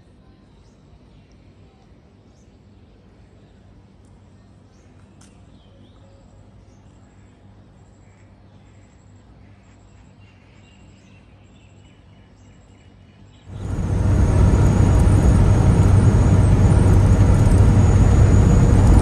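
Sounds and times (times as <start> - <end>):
steady low hum: 13.5 - 19.0.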